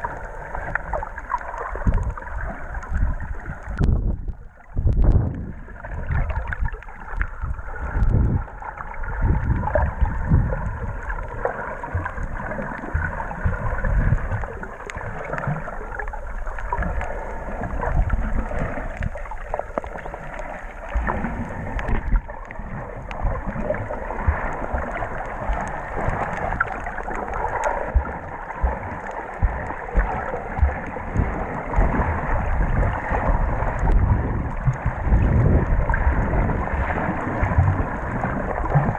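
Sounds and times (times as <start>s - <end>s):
muffled churning underwater: 0.0s - 38.9s
faint clicks: 14.2s - 32.6s.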